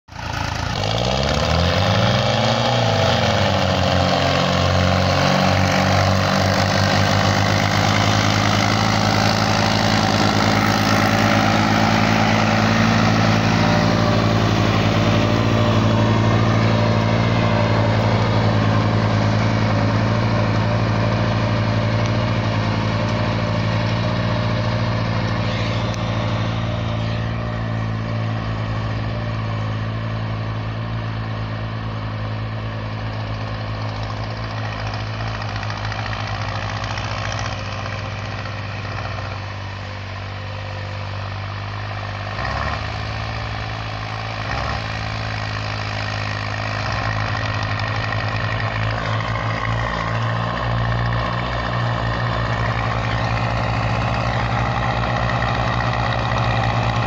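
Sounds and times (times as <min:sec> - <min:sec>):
diesel tractor engines under load: 0:00.1 - 0:57.0.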